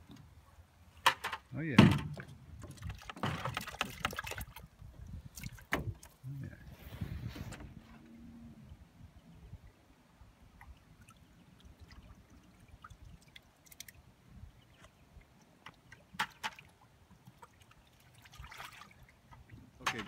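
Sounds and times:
water dribbling and sloshing: 0.0 - 20.0
small water splashes: 1.9 - 6.3, 10.4 - 20.0.

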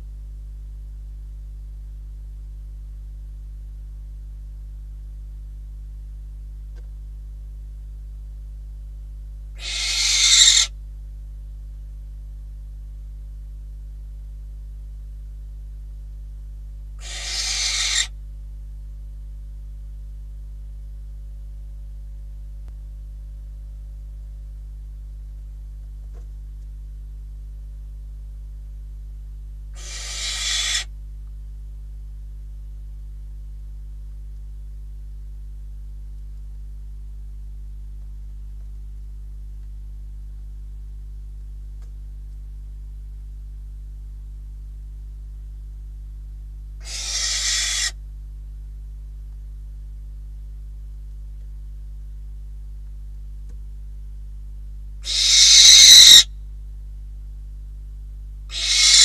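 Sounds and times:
steady low hum: 0.0 - 59.0
owl hissing screeches: 9.6 - 10.7, 17.0 - 18.1, 29.8 - 30.9, 46.8 - 48.0, 55.0 - 56.3, 58.5 - 59.0.

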